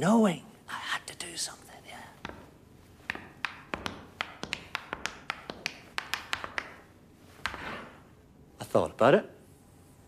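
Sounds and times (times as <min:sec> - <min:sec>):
hard shoes clicking on tiles: 0:02.2 - 0:08.0.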